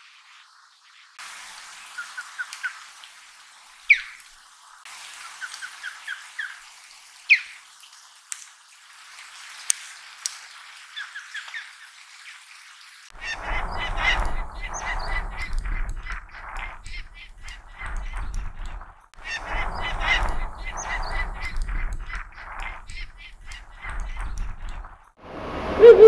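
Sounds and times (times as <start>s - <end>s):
osprey whistled calls: 3.9s - 4.2s, 13.2s - 17.6s, 19.2s - 23.4s, 25.3s - 26.0s
wind rumble: 13.1s - 26.0s
falcon rapid calls: 19.2s - 23.6s, 25.6s - 26.0s.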